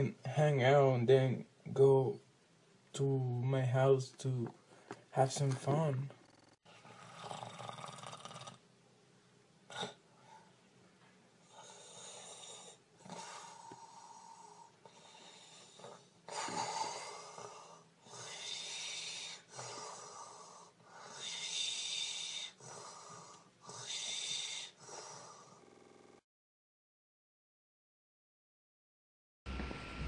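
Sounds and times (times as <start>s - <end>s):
person snoring: 6.2s - 8.6s.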